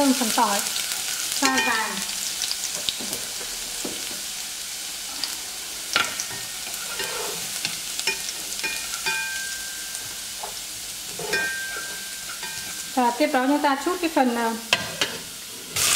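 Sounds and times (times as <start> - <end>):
garlic sizzling in oil: 0.0 - 15.9
chopsticks tapping and scraping pot: 10.0 - 12.8.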